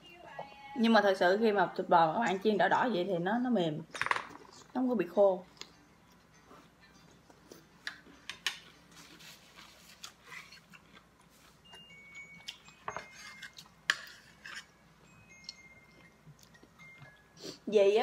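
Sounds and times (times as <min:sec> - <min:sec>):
cutlery scraping on a plate: 0:12.8 - 0:14.8
quiet chewing: 0:15.4 - 0:17.2.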